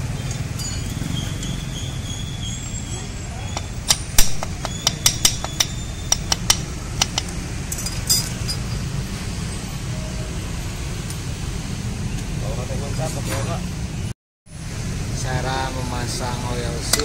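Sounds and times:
metal tools clinking: 0.2 - 1.6, 3.5 - 8.9.

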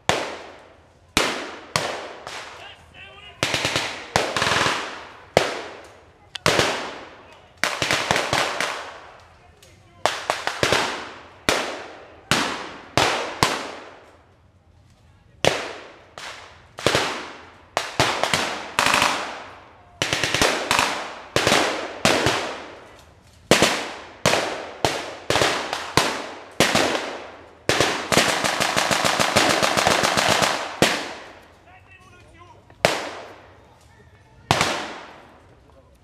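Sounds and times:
blank gunfire shots and bursts: 0.0 - 2.6, 3.3 - 9.2, 10.0 - 14.1, 15.4 - 33.5, 34.5 - 35.5
submachine gun continuous burst: 3.4 - 5.7, 20.0 - 22.6, 24.4 - 31.3.

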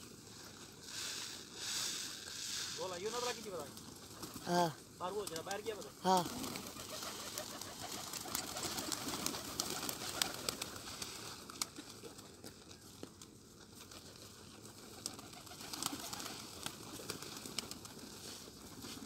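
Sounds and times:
pigeons cooing: 3.8 - 12.5, 13.8 - 19.0.

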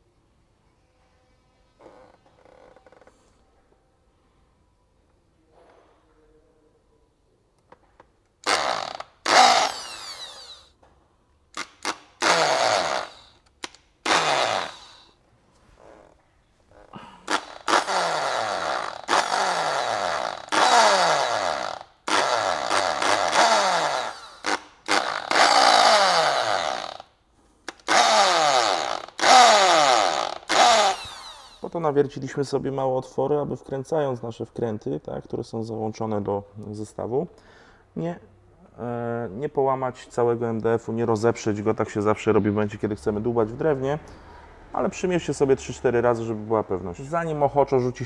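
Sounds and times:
electric drill whining: 8.4 - 10.8, 11.6 - 13.5, 14.1 - 15.2, 17.3 - 27.1, 27.8 - 31.7.

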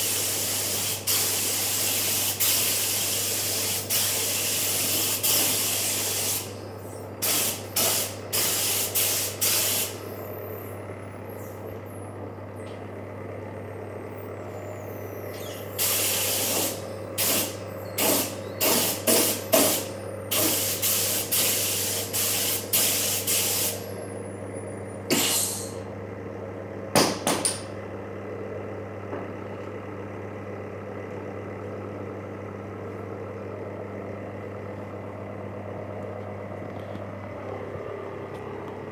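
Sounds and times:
air spray gun hissing: 0.0 - 6.5, 7.2 - 10.0, 15.8 - 23.9, 25.1 - 25.8
low machine hum: 0.0 - 38.9.

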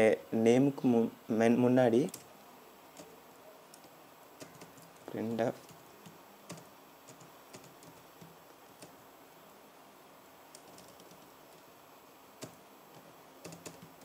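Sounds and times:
keyboard key clicks: 13.4 - 14.0.

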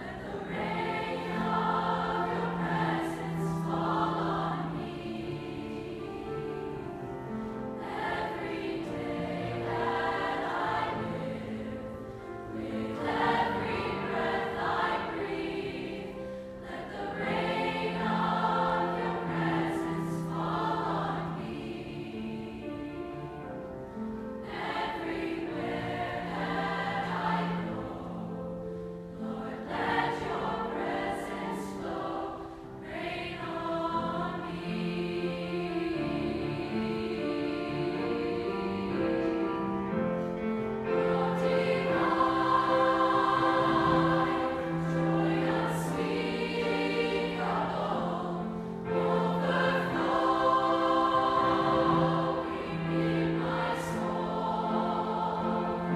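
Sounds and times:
choir singing worship song: 0.0 - 55.9.

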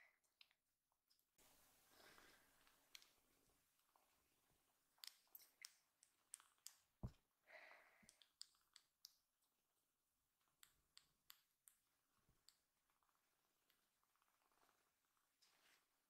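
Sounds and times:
faint small clicks: 2.4 - 3.2, 5.0 - 7.2, 7.8 - 9.4, 10.4 - 15.5
faint soft rustle: 12.2 - 16.0.

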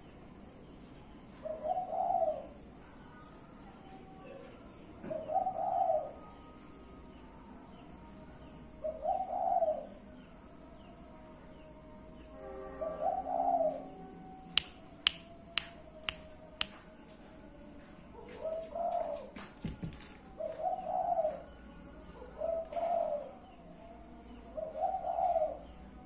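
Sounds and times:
doves cooing: 1.4 - 2.6, 4.3 - 6.3, 8.8 - 10.0, 12.8 - 14.1, 18.2 - 21.5, 22.2 - 23.4, 24.5 - 25.8
sharp clicks: 14.6 - 16.8.

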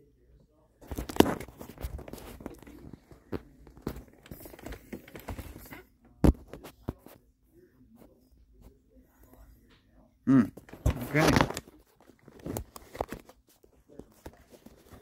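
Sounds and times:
clicks taps and rustles: 0.8 - 7.2, 10.6 - 15.0.

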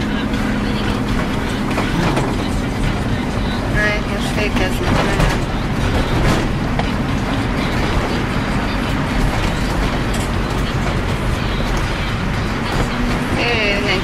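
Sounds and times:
tyres on slushy road: 0.0 - 14.0.

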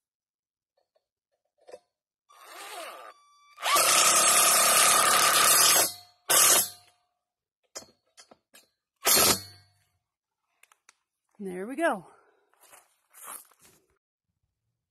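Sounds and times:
power drill driving a screw: 2.3 - 6.7.

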